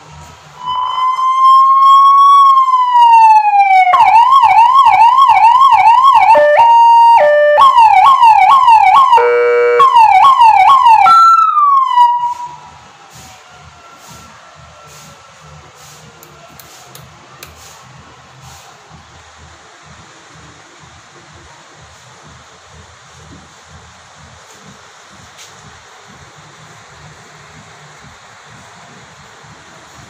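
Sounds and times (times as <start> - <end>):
electronic siren cycling tones: 0.6 - 12.8
buzzing horn blast: 9.0 - 10.2.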